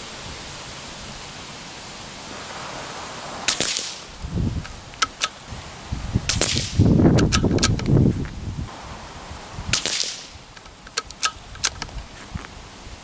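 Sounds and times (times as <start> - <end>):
steady hiss: 0.0 - 13.0
wind on microphone: 2.2 - 10.6
suppressed rifle shot: 2.3 - 5.4, 6.3 - 7.8, 9.7 - 10.3
rifle bolt clicks: 5.0 - 5.4, 7.2 - 7.9, 9.8 - 11.9.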